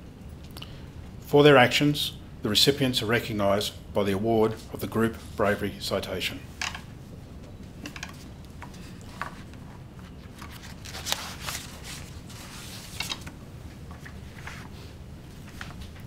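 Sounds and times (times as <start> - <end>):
steady low hum: 0.0 - 16.0
soft clicks and rustles: 6.6 - 16.0.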